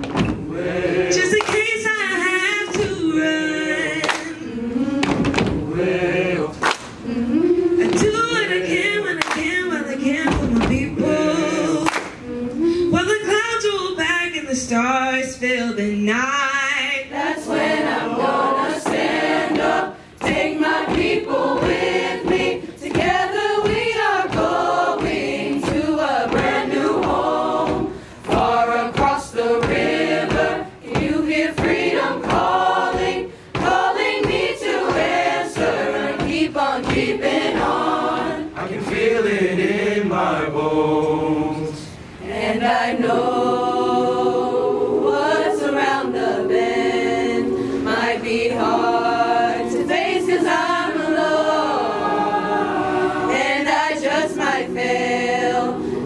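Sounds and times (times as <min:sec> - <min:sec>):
choir singing: 0:00.0 - 0:13.0, 0:16.9 - 0:56.0
woman singing into a microphone: 0:07.2 - 0:13.6.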